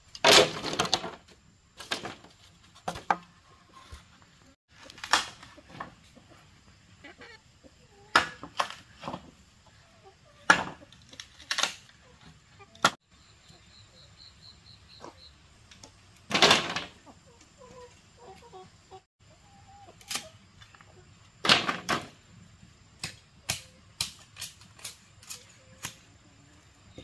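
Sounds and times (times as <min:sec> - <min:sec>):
chickens clucking: 0:01.9 - 0:21.4, 0:25.2 - 0:27.0.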